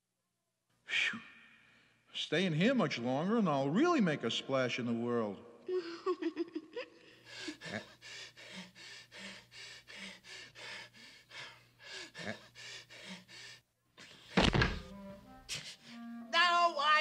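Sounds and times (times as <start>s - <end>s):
person breathing heavily: 7.0s - 14.3s.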